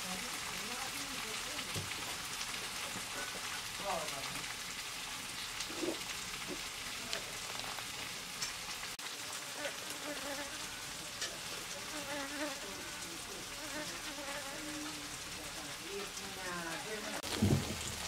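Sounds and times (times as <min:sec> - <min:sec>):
fly buzzing: 0:09.5 - 0:10.8, 0:11.8 - 0:15.0.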